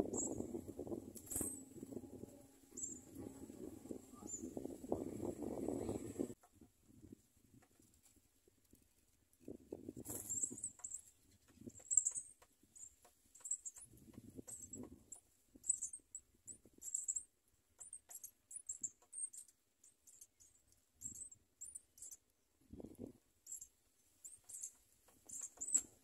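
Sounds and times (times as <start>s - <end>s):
nestlings begging squeaks: 10.1s - 19.5s, 23.5s - 26.0s.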